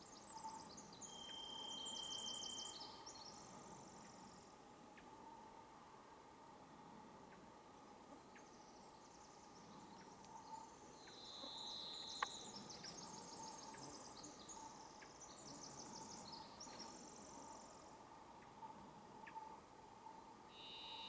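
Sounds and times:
wren singing trills: 0:00.1 - 0:03.4, 0:08.4 - 0:17.7.

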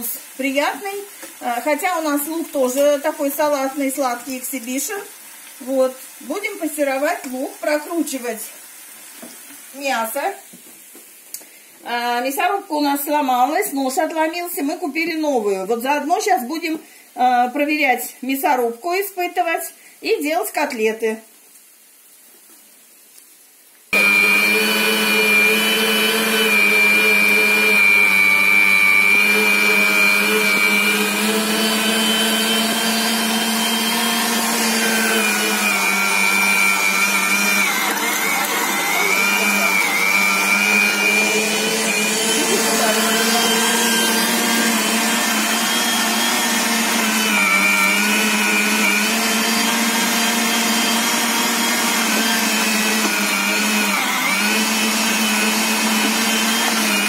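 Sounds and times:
electric meat grinder whining: 0:24.0 - 0:57.0.

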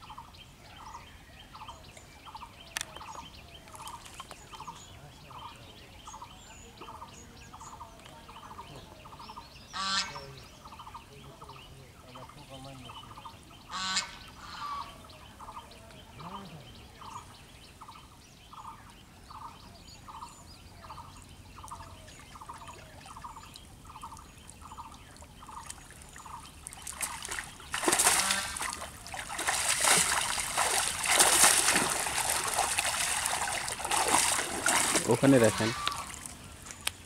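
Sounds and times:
water trickling softly: 0:20.6 - 0:37.0
net splashing in water: 0:26.6 - 0:36.4.

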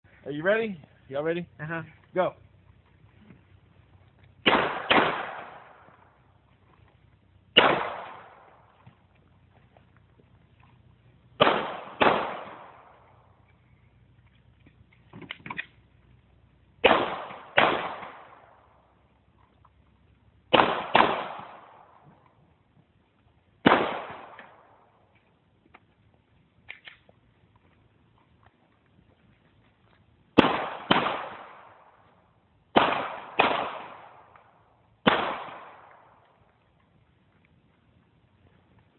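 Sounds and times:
pistol shots echoing: 0:04.4 - 0:06.2, 0:07.5 - 0:08.8, 0:11.4 - 0:13.3, 0:16.8 - 0:18.8, 0:20.5 - 0:22.0, 0:23.6 - 0:25.0, 0:30.4 - 0:32.1, 0:32.7 - 0:36.3.

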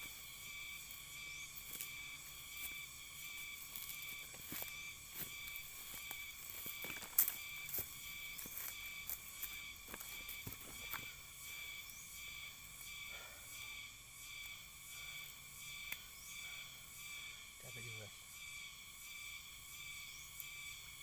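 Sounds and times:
insects droning: 0:00.0 - 0:21.0
footsteps crunching through dry grass: 0:00.9 - 0:11.2.

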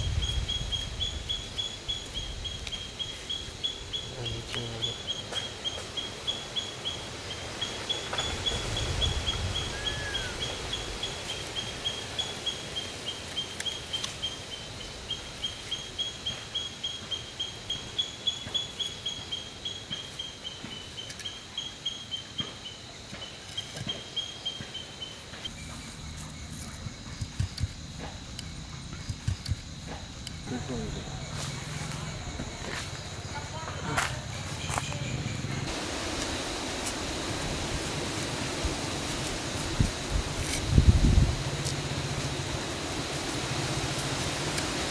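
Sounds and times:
animal chirping: 0:07.6 - 0:12.6.

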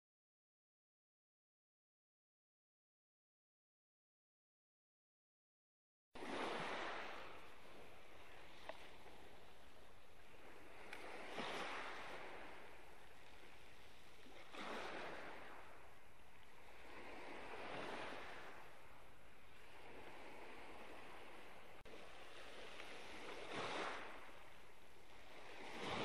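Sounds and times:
waves washing over pebbles: 0:06.2 - 0:15.9, 0:19.6 - 0:26.0.

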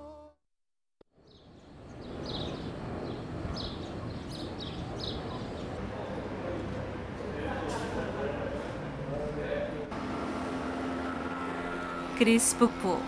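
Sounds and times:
outdoor city hum: 0:01.0 - 0:13.0
birds chirping: 0:01.2 - 0:07.0.

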